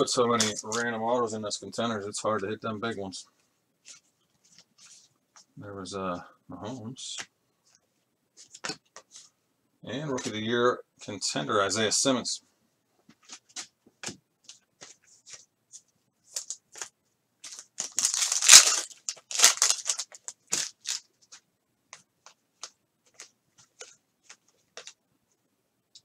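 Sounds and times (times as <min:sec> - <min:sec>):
foil wrapper crinkling and tearing: 0:17.4 - 0:21.1.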